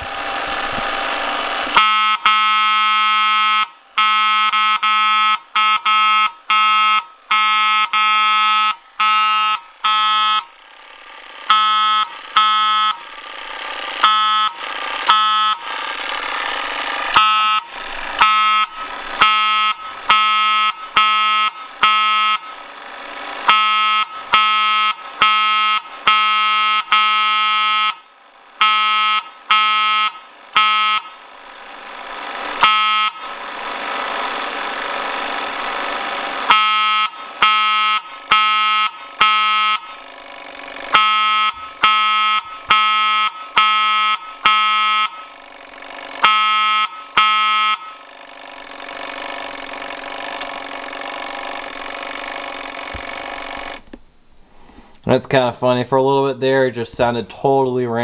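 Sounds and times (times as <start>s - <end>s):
rough unpitched buzzing: 0.0s - 3.2s, 6.2s - 55.0s
mechanical fire alarm horn blasts: 1.7s - 10.6s, 11.4s - 13.1s, 14.0s - 15.7s, 17.1s - 22.6s, 23.4s - 31.2s, 32.6s - 33.3s, 36.5s - 40.0s, 40.9s - 45.4s, 46.2s - 48.2s.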